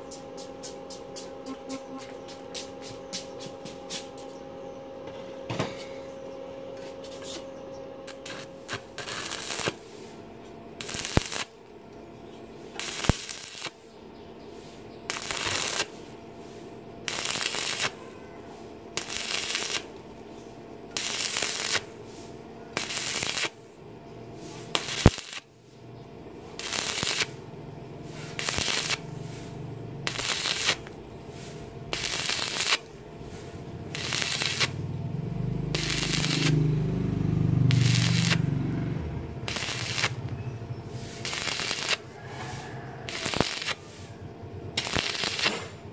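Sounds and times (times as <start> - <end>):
welding arc crackling: 8.0 - 10.2, 10.8 - 11.7, 12.6 - 13.9, 14.7 - 16.2, 17.0 - 18.0, 18.9 - 20.2, 20.9 - 23.6, 24.4 - 25.5, 26.5 - 45.9.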